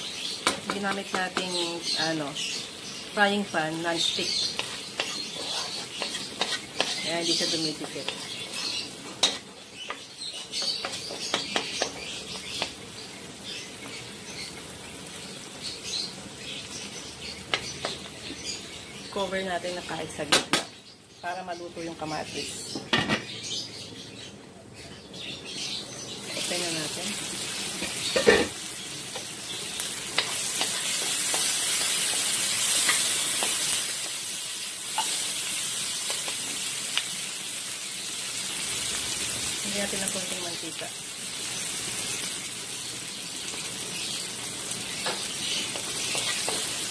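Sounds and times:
food sizzling in a wok: 0.0 - 22.4, 26.0 - 46.9
spatula tapping and scraping pan: 0.4 - 1.7, 4.2 - 12.8, 17.5 - 18.1, 30.1 - 34.2, 45.0 - 46.8
spatula knocking against pan: 10.6 - 12.0.

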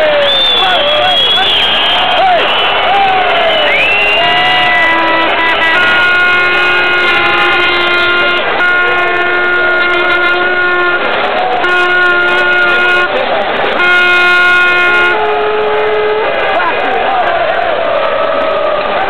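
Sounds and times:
crowd noise: 0.0 - 19.0
handheld horns blowing: 3.6 - 16.7.

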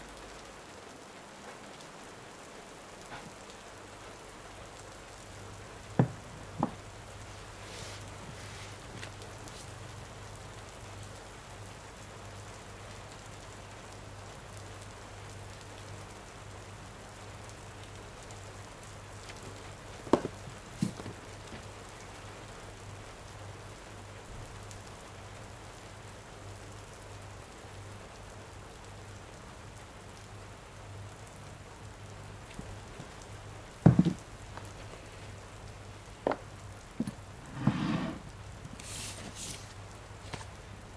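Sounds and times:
steady rain falling: 0.0 - 40.9
short knocks: 33.8 - 34.2.

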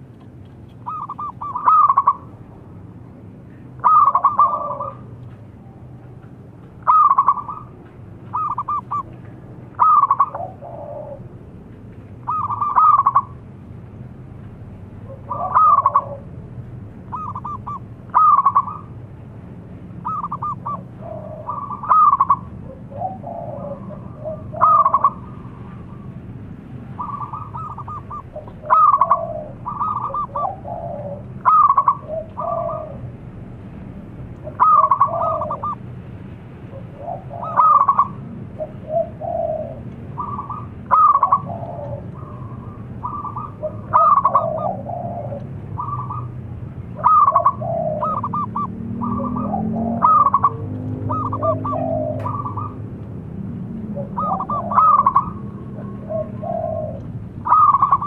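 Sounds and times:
dove cooing: 0.8 - 2.3, 3.5 - 5.2, 6.8 - 11.4, 12.2 - 13.4, 15.0 - 16.3, 17.1 - 19.0, 20.0 - 26.1, 26.9 - 33.2, 34.4 - 35.8, 36.7 - 46.4, 47.0 - 52.9, 53.8 - 58.0.

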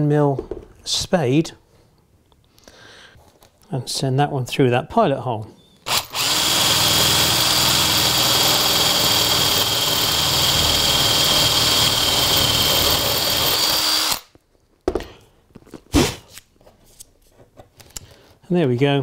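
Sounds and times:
electric drill boring through wood: 5.9 - 14.3.

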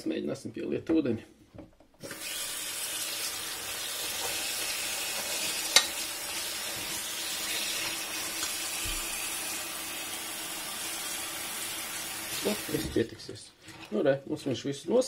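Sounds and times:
tap water running into a pot: 2.0 - 13.0.

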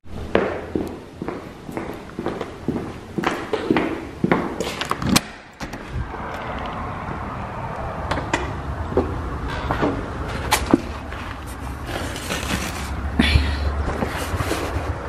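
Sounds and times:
footsteps: 0.1 - 5.1, 8.9 - 15.0
low outdoor rumble: 5.7 - 15.0.

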